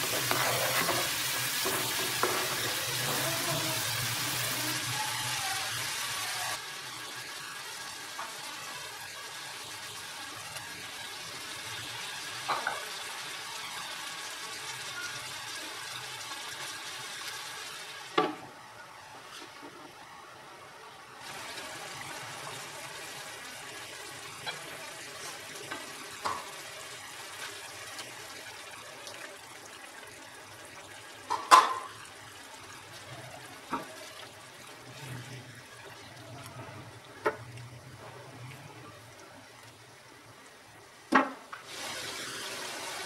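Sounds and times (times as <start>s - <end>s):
liquid simmering in a pan: 21.2s - 43.0s.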